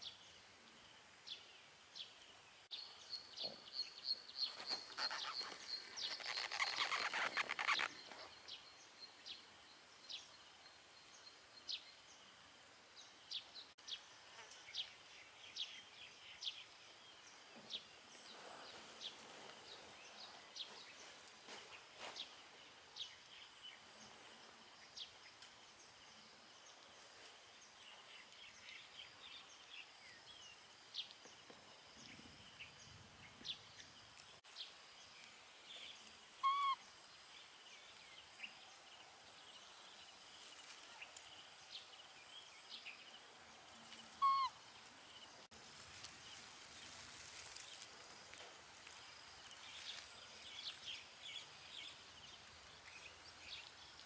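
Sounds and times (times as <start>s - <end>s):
faint high bird chirps: 2.8s - 9.4s, 35.7s - 36.9s, 40.4s - 45.3s
loud pitched bird calls: 4.5s - 8.2s, 36.4s - 36.9s, 44.2s - 44.6s.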